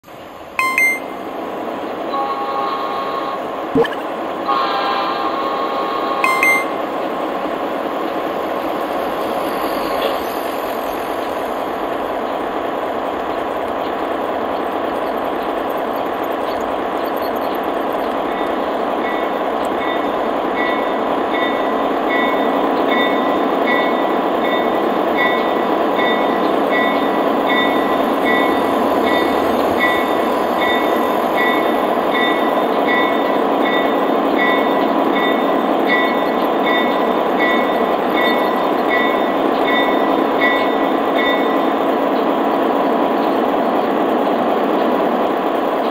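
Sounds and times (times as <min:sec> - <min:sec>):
repeating high ding: 0:00.6 - 0:01.1, 0:03.8 - 0:04.0, 0:06.2 - 0:06.8
short pitched tone: 0:00.6 - 0:01.2, 0:03.8 - 0:04.1, 0:06.2 - 0:06.8.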